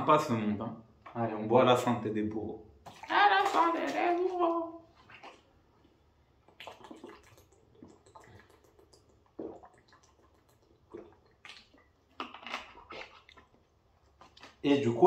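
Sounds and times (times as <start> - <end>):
water sloshing in bottle: 2.7 - 14.7
person gulping water: 2.8 - 14.9.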